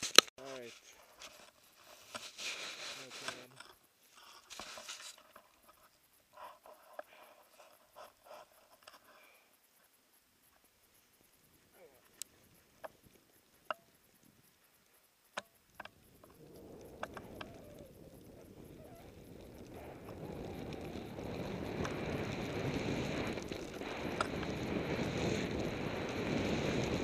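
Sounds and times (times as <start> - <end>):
skis hissing through powder snow: 0.0 - 5.3, 16.4 - 27.0
wind on microphone: 15.9 - 27.0.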